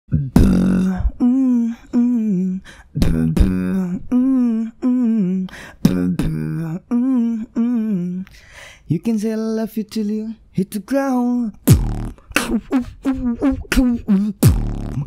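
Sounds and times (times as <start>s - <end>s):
beatbox mouth hits: 0.1s - 1.2s, 3.0s - 3.7s, 11.6s - 15.0s
man singing wordless phrases: 0.1s - 15.0s.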